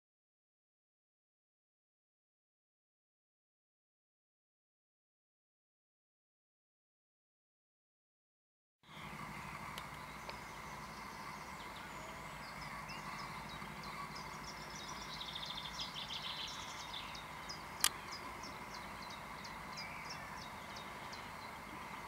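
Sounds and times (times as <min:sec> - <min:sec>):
songbird singing: 0:08.8 - 0:22.0
low background hum: 0:08.9 - 0:22.0.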